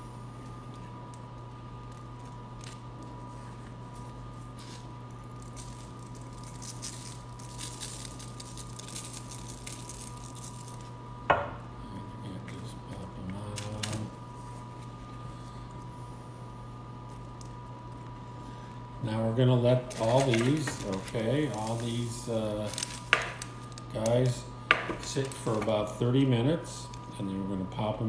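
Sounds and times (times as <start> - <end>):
steady low hum: 0.0 - 28.0
seeds pattering onto dough: 0.3 - 11.0, 19.8 - 25.9.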